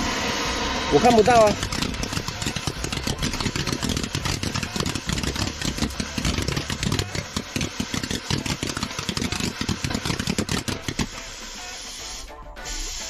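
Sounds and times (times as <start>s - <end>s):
firework fountain crackling: 0.9s - 11.1s
aerosol can spraying hiss: 1.6s - 13.0s.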